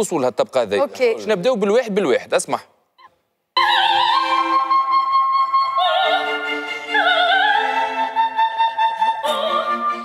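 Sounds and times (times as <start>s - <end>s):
soprano singing with vibrato: 3.6s - 10.0s.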